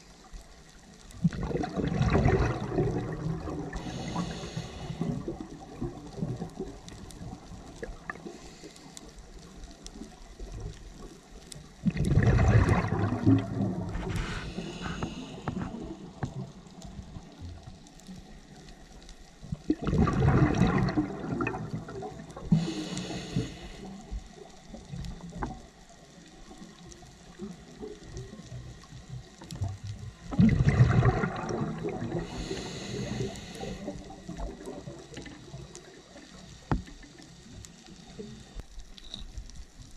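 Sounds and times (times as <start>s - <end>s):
exhaled bubbles bursting: 1.1s - 8.3s, 11.7s - 17.5s, 19.4s - 22.7s, 29.5s - 36.2s
regulator inhale hiss: 3.6s - 5.6s, 7.9s - 9.5s, 13.8s - 16.3s, 22.4s - 24.5s, 32.0s - 34.9s.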